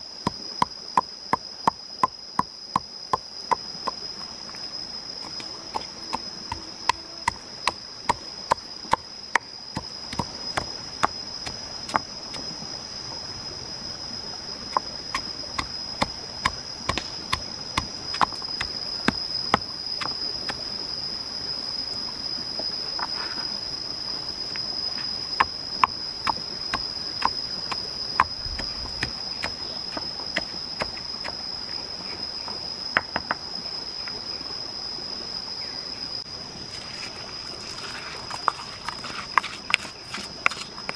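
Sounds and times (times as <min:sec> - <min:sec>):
high insect buzz: 0:00.0 - 0:40.9
pestle pounding in stone mortar: 0:05.2 - 0:12.4, 0:14.7 - 0:20.2, 0:25.4 - 0:30.9, 0:38.3 - 0:40.9.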